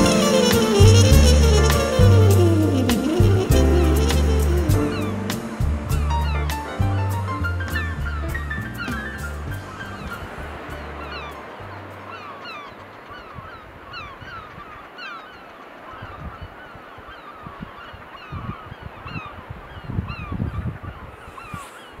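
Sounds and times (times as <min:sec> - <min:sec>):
geese honking: 0:00.0 - 0:05.5
low rumbles: 0:00.0 - 0:13.5.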